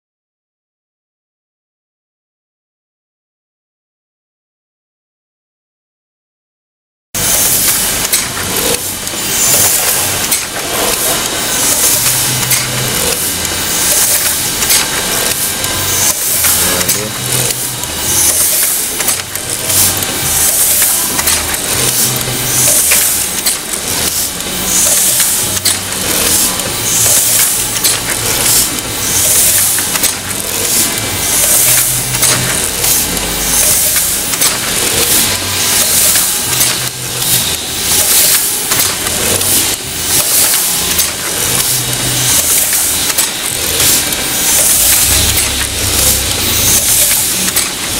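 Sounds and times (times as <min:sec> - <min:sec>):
press hissing: 0:07.2 - 0:47.9
printing press clattering: 0:07.2 - 0:47.9.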